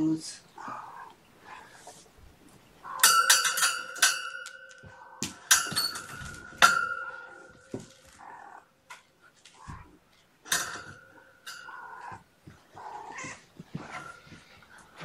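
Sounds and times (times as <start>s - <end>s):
kittens mewing: 0.5s - 1.9s, 2.7s - 3.2s, 11.6s - 14.5s
kittens scuffling: 0.6s - 15.0s
sharp ringing knocks: 2.9s - 8.0s.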